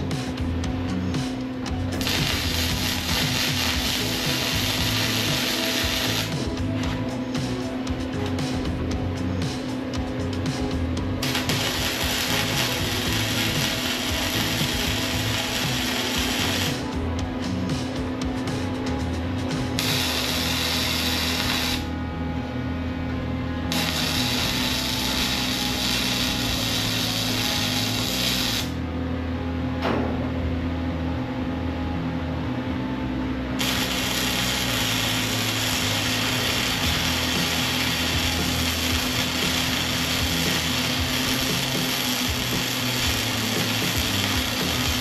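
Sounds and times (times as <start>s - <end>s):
background music: 0.0s - 45.0s
welder arc crackling: 1.9s - 7.1s, 11.2s - 16.9s, 19.7s - 21.9s, 23.7s - 28.8s, 33.6s - 45.0s.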